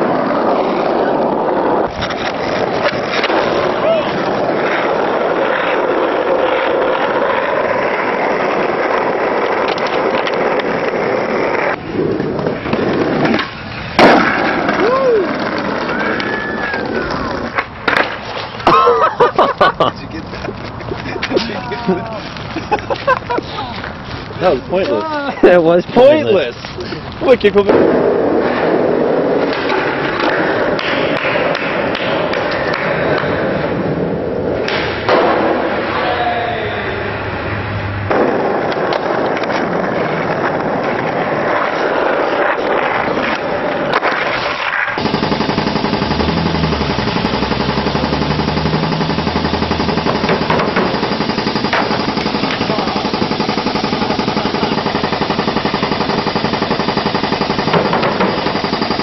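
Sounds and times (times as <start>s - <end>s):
skateboard wheels rolling on asphalt: 0.0s - 54.0s
skateboard clacks and taps: 4.3s - 18.5s, 29.4s - 33.4s, 38.1s - 45.0s.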